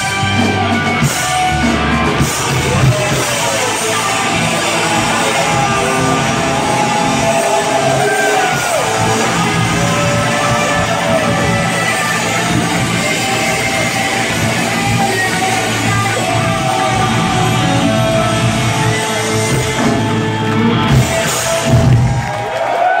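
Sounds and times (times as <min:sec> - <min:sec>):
live hard rock band: 0:00.0 - 0:22.5
person singing: 0:02.4 - 0:20.2.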